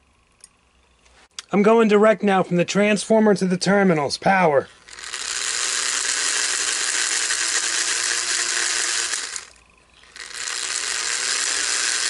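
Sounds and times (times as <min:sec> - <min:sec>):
toy train motor whirring: 0:04.8 - 0:12.0.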